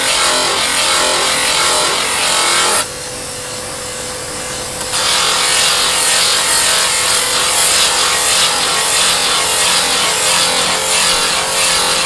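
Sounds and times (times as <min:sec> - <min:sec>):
steel grinding on grinding wheel: 0:00.0 - 0:02.8, 0:04.9 - 0:12.0.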